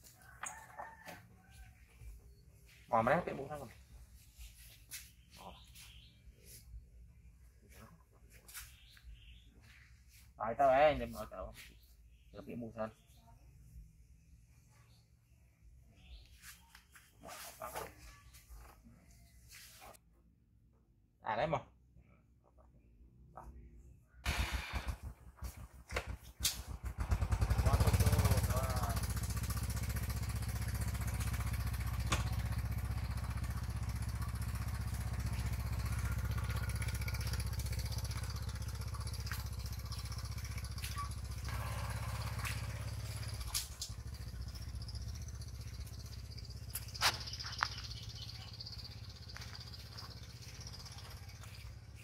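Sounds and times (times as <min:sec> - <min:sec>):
motorbike engine starting and revving: 0:24.2 - 0:52.0.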